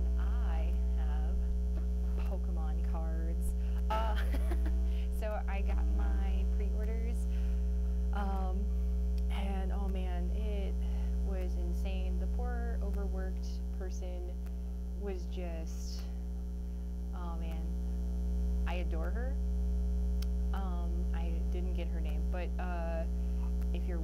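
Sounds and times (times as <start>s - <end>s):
person talking: 0.0s - 1.5s, 2.1s - 7.5s, 8.1s - 14.4s, 15.0s - 16.2s, 17.2s - 17.7s, 18.7s - 19.4s, 20.6s - 24.0s
electrical mains hum: 0.0s - 24.0s.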